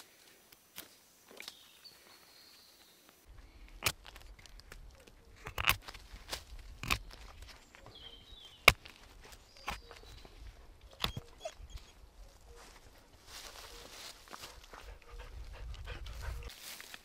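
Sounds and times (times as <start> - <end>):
sharp cracks and knocks: 3.8 - 7.6, 8.6 - 9.9.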